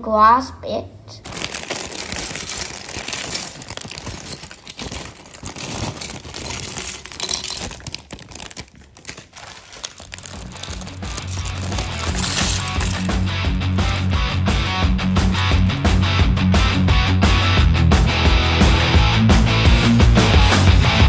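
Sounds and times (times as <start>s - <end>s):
plastic bricks clicking and rattling: 1.2s - 14.2s
plastic bags crinkling: 1.2s - 14.6s
background music with a beat: 13.2s - 21.0s.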